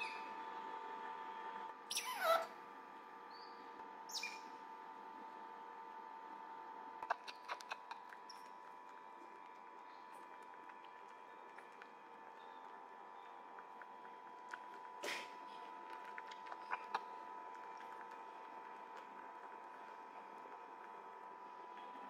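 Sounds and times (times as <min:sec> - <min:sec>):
faint steady whine: 0:00.0 - 0:22.0
otter pup squeaking: 0:01.9 - 0:02.6, 0:04.1 - 0:04.5, 0:07.0 - 0:08.6.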